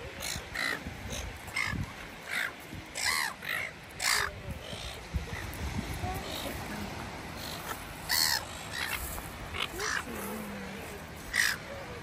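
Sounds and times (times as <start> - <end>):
gulls squawking: 0.1 - 5.6, 7.4 - 10.3, 11.3 - 11.7.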